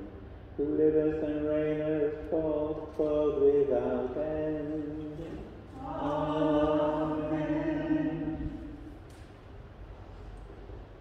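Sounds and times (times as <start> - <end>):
person chanting: 0.6 - 8.9.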